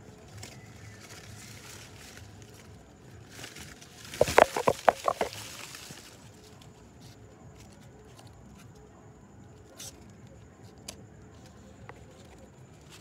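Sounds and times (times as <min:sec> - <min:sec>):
leaves and twigs brushing phone: 0:00.2 - 0:08.2.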